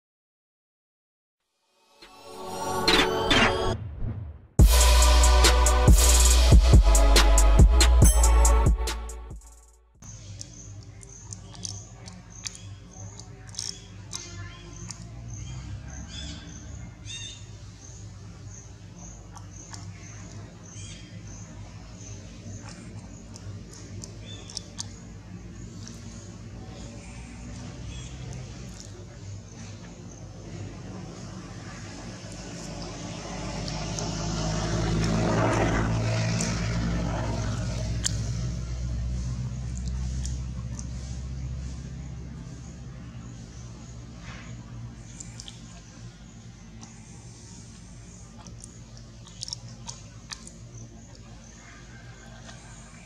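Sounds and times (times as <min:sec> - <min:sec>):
steady low hum: 0:04.6 - 0:53.0
engine passing by: 0:11.1 - 0:53.0.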